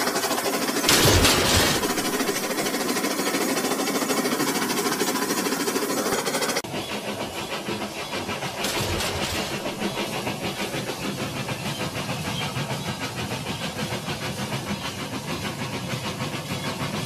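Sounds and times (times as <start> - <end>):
toy steam train chuffing: 0.0 - 17.0
toy train clatter: 8.6 - 10.2.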